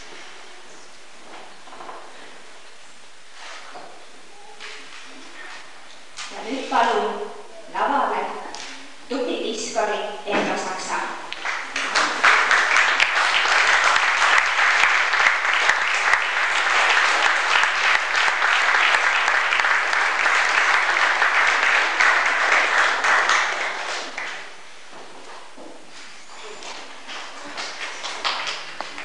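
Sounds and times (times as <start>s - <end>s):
audience applauding: 11.3s - 24.6s, 27.1s - 29.0s.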